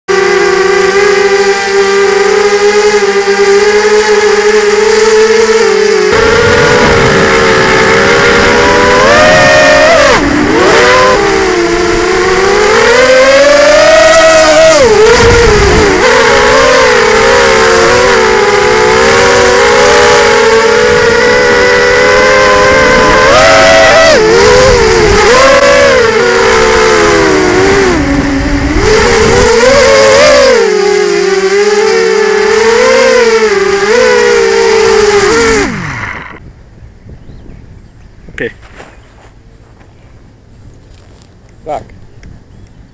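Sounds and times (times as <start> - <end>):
quadcopter motors whining: 0.1 - 36.5.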